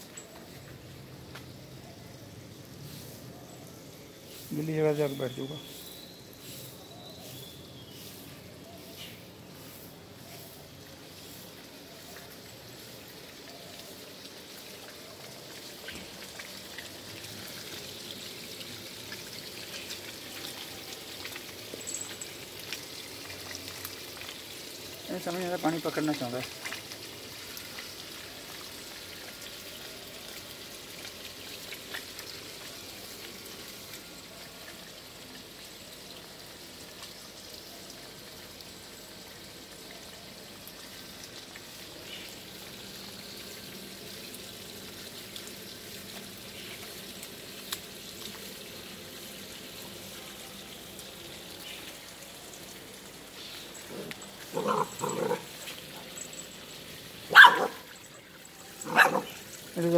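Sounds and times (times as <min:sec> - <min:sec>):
hose water running on paving: 0:00.0 - 0:59.9
puppy barking: 0:53.9 - 0:56.2, 0:57.3 - 0:57.9, 0:58.8 - 0:59.4.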